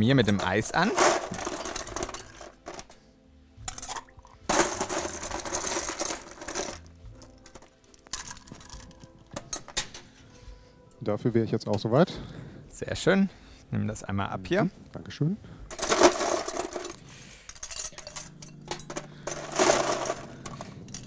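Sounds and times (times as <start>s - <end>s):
ice cubes rattling in metal shaker: 0.3s - 3.0s, 3.7s - 9.0s, 15.7s - 21.0s.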